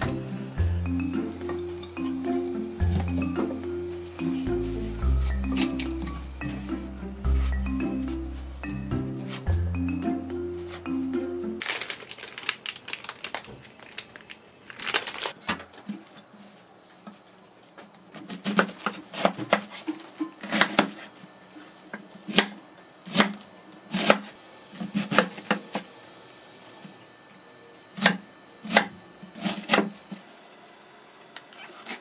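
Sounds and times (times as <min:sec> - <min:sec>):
knife chopping on cutting board: 0:28.0 - 0:29.9.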